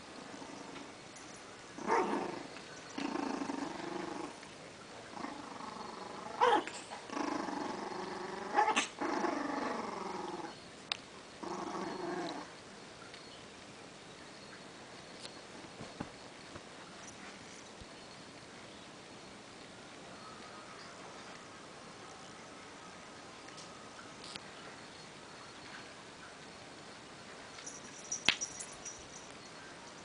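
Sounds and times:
puppy growling: 0.0s - 1.0s, 1.8s - 10.6s, 11.4s - 12.6s.

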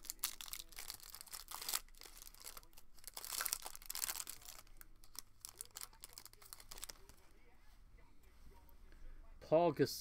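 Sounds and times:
plastic wrapping crinkling and tearing: 0.0s - 7.2s.

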